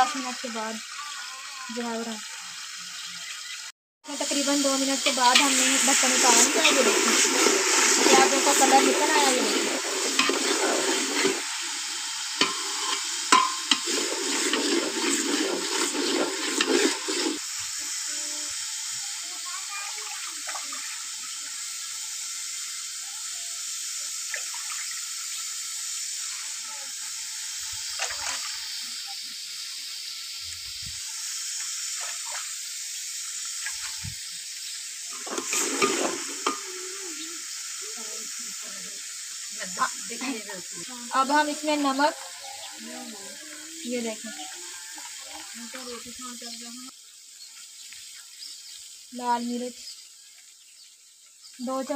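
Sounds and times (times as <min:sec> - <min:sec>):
onions sizzling in pot: 0:00.0 - 0:51.9
ladle clinking: 0:05.2 - 0:11.5, 0:12.3 - 0:17.4, 0:35.2 - 0:36.7
metal spoon stirring: 0:05.3 - 0:11.5, 0:12.4 - 0:17.4
ladle scraping in pot: 0:06.4 - 0:11.6, 0:12.4 - 0:17.4, 0:35.2 - 0:36.7
spoon knocking against pot: 0:12.4 - 0:13.9.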